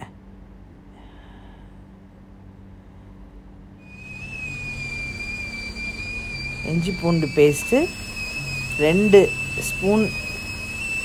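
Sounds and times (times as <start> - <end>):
faint low hum: 0.0 - 11.0
thin whistle-like tone: 3.8 - 11.0.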